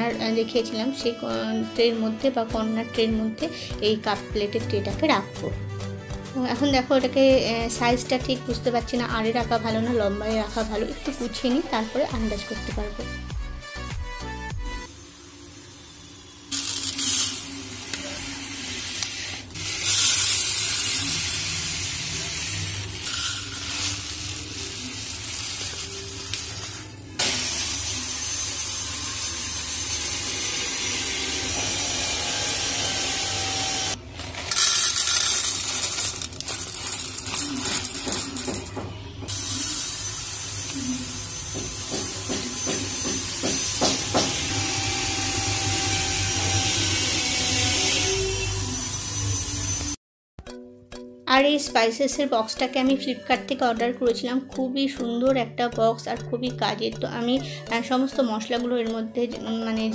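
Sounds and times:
spice seeds pouring into plastic: 16.6 - 18.2, 19.8 - 27.0, 34.1 - 38.7.

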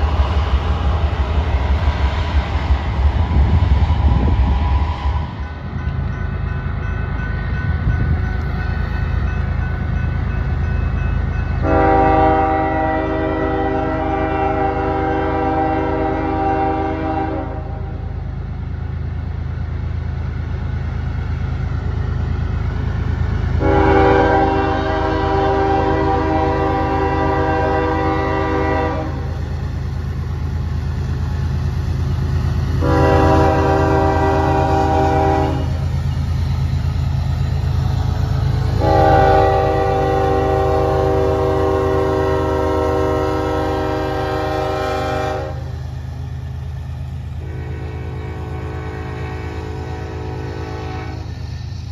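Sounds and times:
locomotive engine rumble: 0.0 - 51.9
locomotive air horn blasts: 11.6 - 18.1, 23.6 - 29.4, 32.8 - 35.8, 38.6 - 45.7, 47.4 - 51.4.

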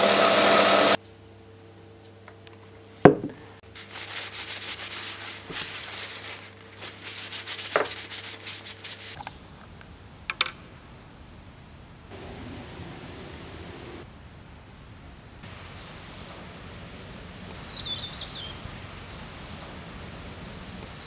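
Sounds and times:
paper towel rubbing wood: 3.7 - 9.2.

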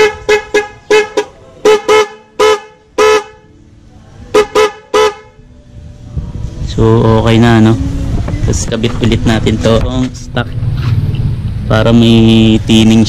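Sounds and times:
motorcycle horn toots: 0.0 - 3.5, 4.4 - 5.4.

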